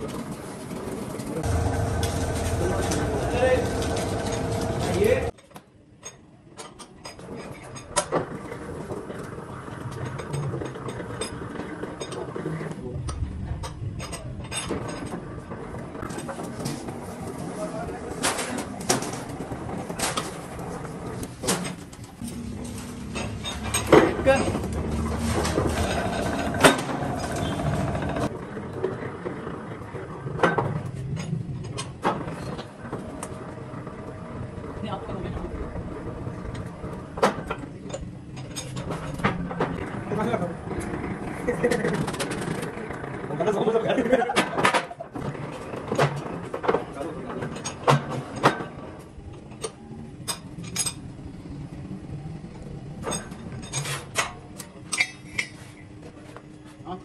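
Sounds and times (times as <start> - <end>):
bending machine humming: 1.3 - 5.3, 22.0 - 30.2, 32.3 - 43.8
machine drive gears grinding: 1.4 - 5.3, 18.4 - 28.4
sharp metal clanks: 22.2 - 28.2.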